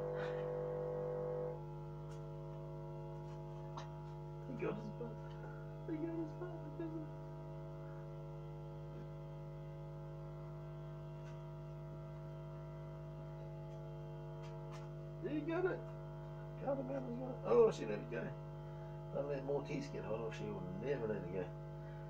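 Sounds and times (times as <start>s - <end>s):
electrical hum: 0.0s - 22.0s.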